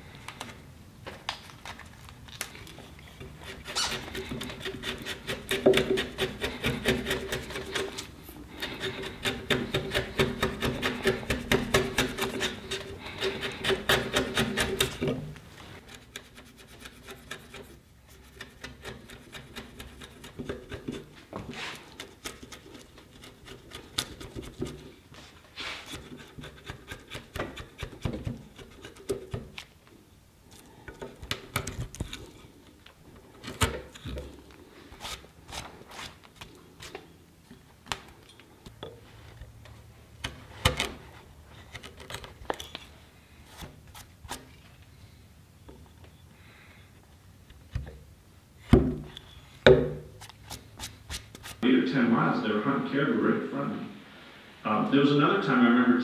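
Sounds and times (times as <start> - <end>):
chisel scraping through wood: 3.2 - 15.2, 15.8 - 24.8, 25.6 - 29.4.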